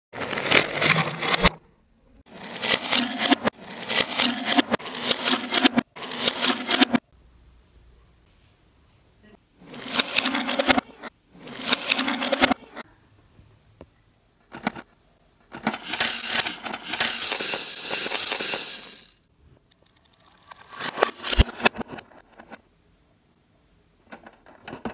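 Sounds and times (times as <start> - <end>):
toy cars rolling on wooden floor: 0.2 - 1.6, 2.2 - 7.1, 9.6 - 12.9, 14.4 - 22.6, 24.0 - 24.9
plastic toy doors clacking: 15.5 - 19.1.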